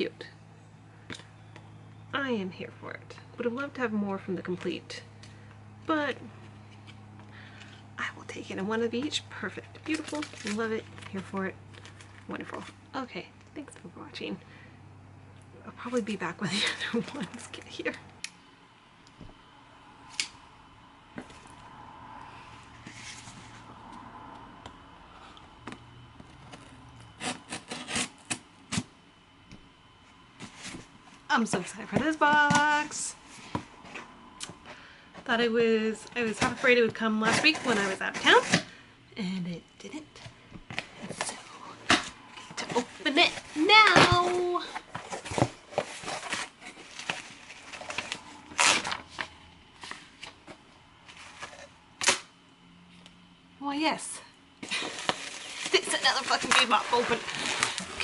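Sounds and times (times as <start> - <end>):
packaging rustling: 9.6 - 12.8, 40.6 - 51.7, 54.6 - 58.0
scissor blade scraping tape: 27.2 - 28.8
box handling: 40.6 - 51.7, 54.6 - 58.0.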